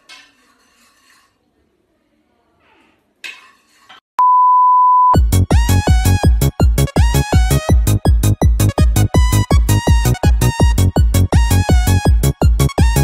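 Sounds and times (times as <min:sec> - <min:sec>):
test-tone beep: 0:04.2 - 0:05.3
electronic dance music: 0:05.2 - 0:13.0.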